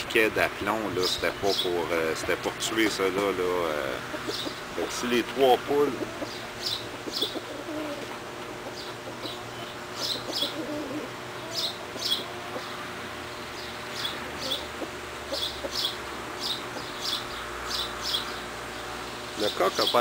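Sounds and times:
chickens clucking quietly: 0:01.7 - 0:13.2, 0:13.9 - 0:17.2.

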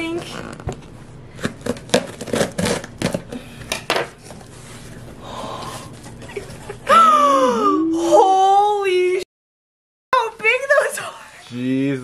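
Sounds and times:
packaging crinkling and tearing: 0:00.4 - 0:03.4.

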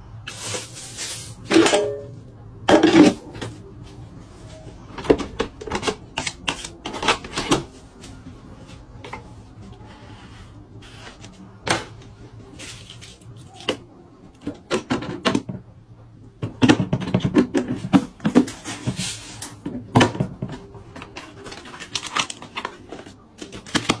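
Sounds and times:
plastic containers clattering: 0:01.5 - 0:03.6, 0:04.9 - 0:08.2, 0:11.2 - 0:15.7, 0:16.4 - 0:24.0.

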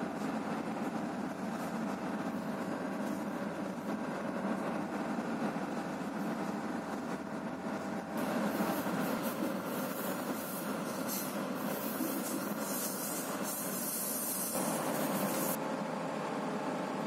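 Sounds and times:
train wheels rumbling on rail: 0:00.0 - 0:15.6
rushing hiss: 0:08.3 - 0:15.6.

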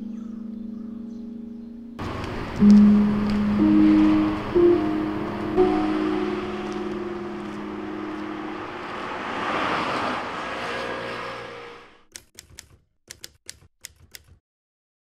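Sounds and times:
rushing noise: 0:02.0 - 0:12.0.

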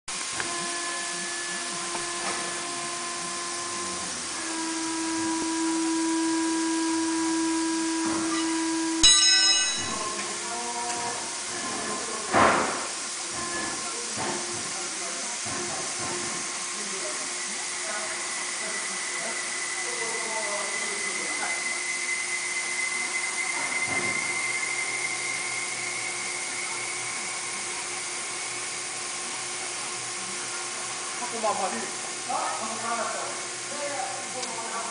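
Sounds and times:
machinery whine: 0:00.1 - 0:12.2, 0:16.6 - 0:34.9
tyre changer motor humming: 0:00.1 - 0:12.3.

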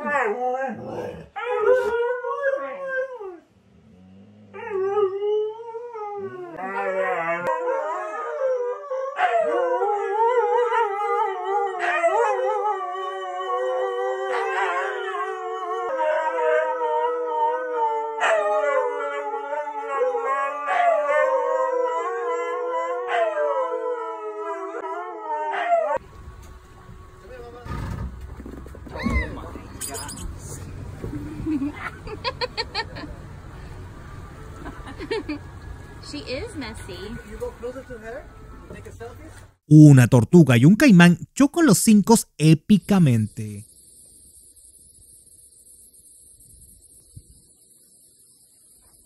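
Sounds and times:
dogs howling: 0:00.0 - 0:03.4, 0:04.5 - 0:26.0.

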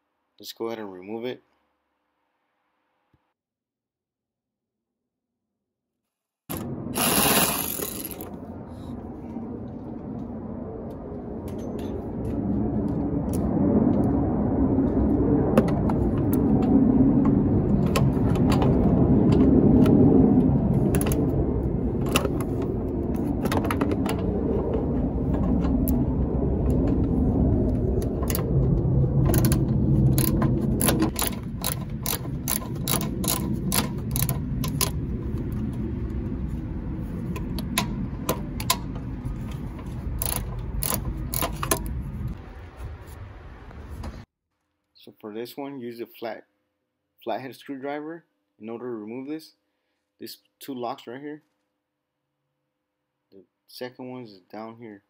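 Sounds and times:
low rumble: 0:06.5 - 0:44.3
ratchet wrench clicking: 0:07.0 - 0:08.2, 0:30.2 - 0:35.0, 0:40.2 - 0:41.9.

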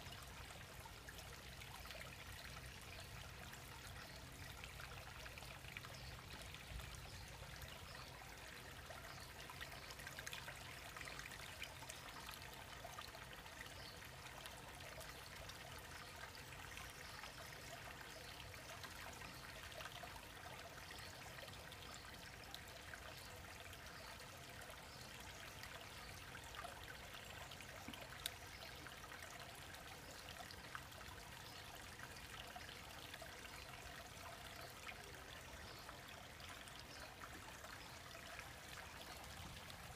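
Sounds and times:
trickle of running water: 0:00.0 - 0:39.9.

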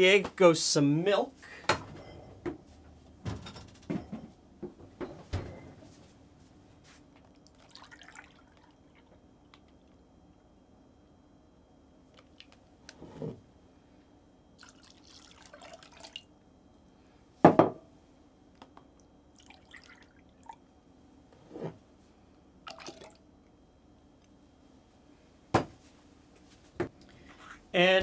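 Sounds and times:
milk pouring and splashing into glass: 0:07.4 - 0:09.1, 0:14.6 - 0:16.3, 0:19.4 - 0:20.6, 0:22.7 - 0:23.2.

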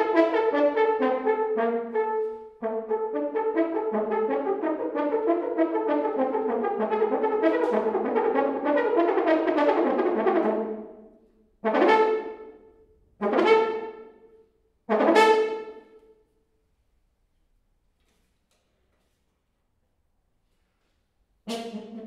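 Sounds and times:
french horn playing: 0:00.0 - 0:14.3, 0:14.9 - 0:16.1.

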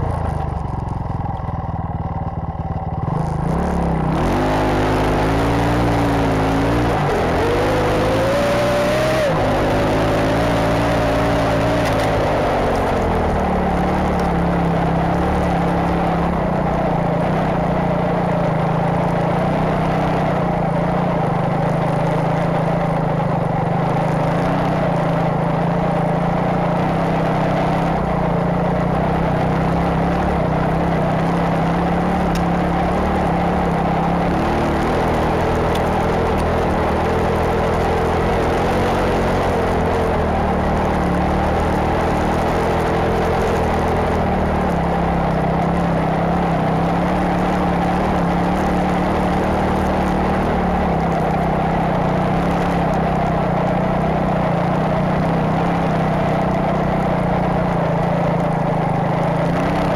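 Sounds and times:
motorcycle engine running under load: 0:00.0 - 0:59.9
track churning through snow: 0:03.1 - 0:22.8.

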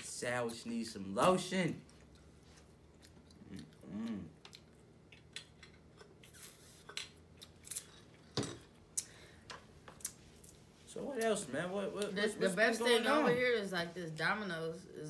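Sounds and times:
chewing: 0:01.8 - 0:08.2
person humming: 0:03.8 - 0:04.4.

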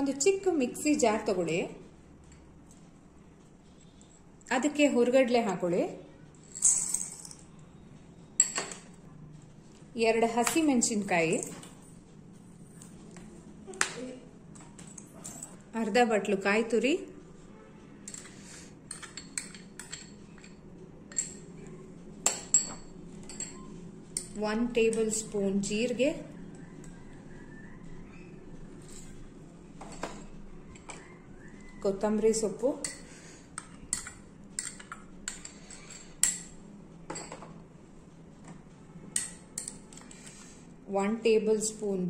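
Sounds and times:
spoon clinking on steel bowls: 0:06.4 - 0:07.6, 0:08.4 - 0:09.0, 0:18.0 - 0:25.2, 0:29.8 - 0:31.1, 0:32.3 - 0:37.6, 0:39.1 - 0:40.4
spoon scraping glass bowl: 0:28.8 - 0:29.3.

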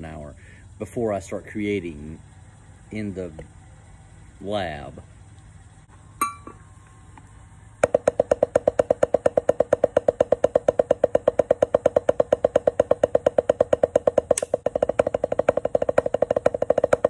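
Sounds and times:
drumsticks on a practice pad: 0:06.2 - 0:06.7, 0:07.8 - 0:17.0.

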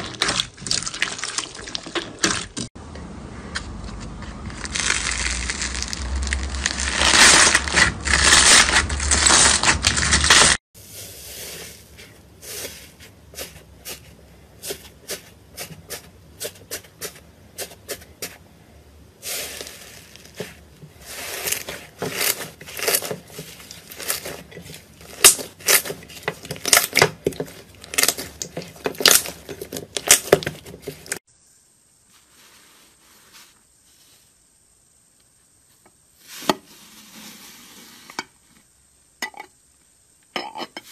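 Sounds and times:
crunchy slime crackling: 0:00.0 - 0:02.7, 0:04.3 - 0:10.6, 0:19.2 - 0:31.2.

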